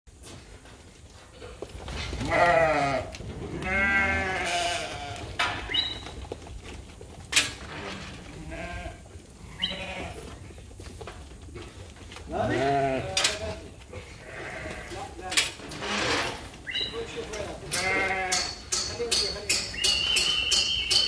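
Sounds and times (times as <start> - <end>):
sheep bleating: 2.2 - 5.3, 8.4 - 10.3, 12.3 - 15.1, 17.7 - 18.6.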